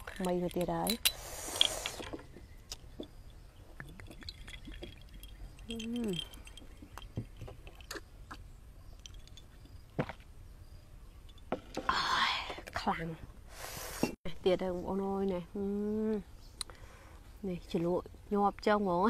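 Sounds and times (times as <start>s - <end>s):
person chewing: 5.7s - 8.4s.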